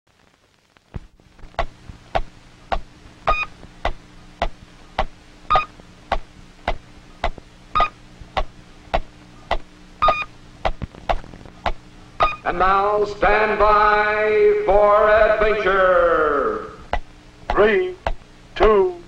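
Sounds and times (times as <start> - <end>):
low steady hum: 0.1 - 19.0
electronic ticking: 1.6 - 12.5
short electronic beep: 5.5 - 5.7, 7.8 - 8.0, 10.0 - 10.3.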